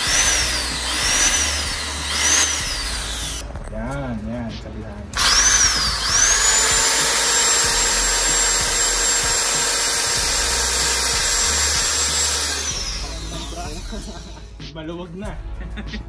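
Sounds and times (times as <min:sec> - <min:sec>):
electric drill whining: 0:00.0 - 0:03.5, 0:05.2 - 0:14.5.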